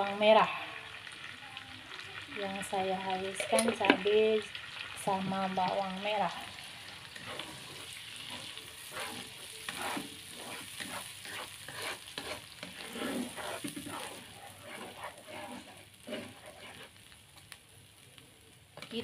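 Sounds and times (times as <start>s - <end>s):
paste sizzling in hot oil: 0.0s - 19.0s
spatula scraping wok: 6.3s - 17.5s.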